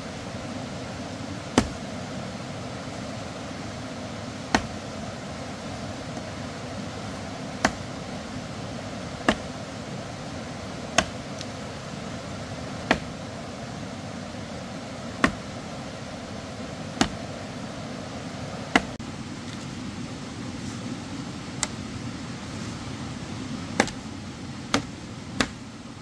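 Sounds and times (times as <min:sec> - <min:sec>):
background hiss: 0:00.0 - 0:26.0
blade chopping: 0:01.6 - 0:01.9, 0:04.5 - 0:05.0, 0:07.6 - 0:07.9, 0:09.2 - 0:09.6, 0:10.9 - 0:11.5, 0:12.8 - 0:13.2, 0:15.2 - 0:15.5, 0:17.0 - 0:17.2, 0:18.7 - 0:19.0, 0:23.8 - 0:24.0, 0:24.7 - 0:25.6.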